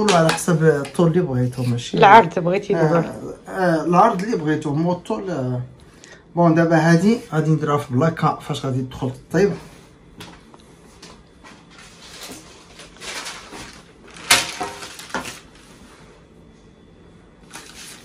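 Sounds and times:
pastry rustling: 0:10.9 - 0:16.3.

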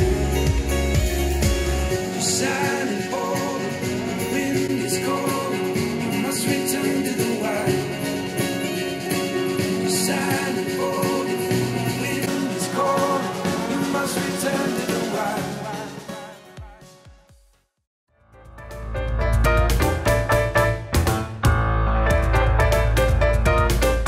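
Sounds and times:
song with sung vocal: 0:00.0 - 0:17.4.

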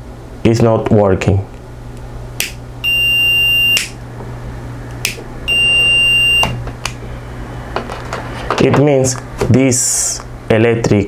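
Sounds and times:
multimeter continuity beep: 0:02.8 - 0:04.0, 0:05.5 - 0:06.6.

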